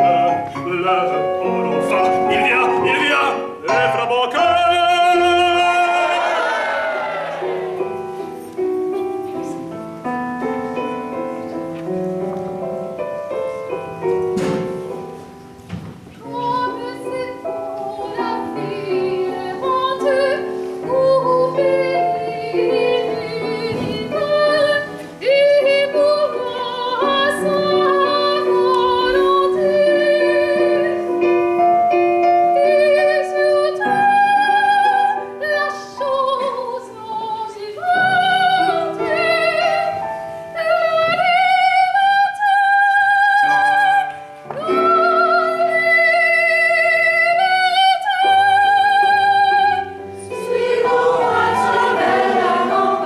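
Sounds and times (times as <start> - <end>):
piano accompaniment: 0.0 - 53.0
woman singing operatically: 16.2 - 31.1, 32.5 - 39.9, 40.6 - 53.0.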